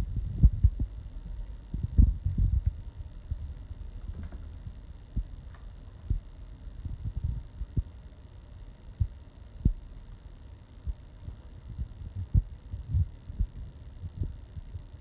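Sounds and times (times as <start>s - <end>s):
low rumble: 0.0s - 5.4s
soft low thumps: 0.0s - 8.0s, 11.7s - 14.8s.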